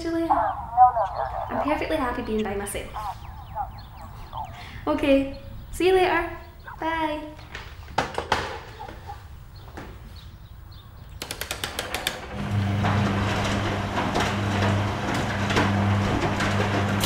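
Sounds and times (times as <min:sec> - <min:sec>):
quick clicks: 0:11.1 - 0:12.2.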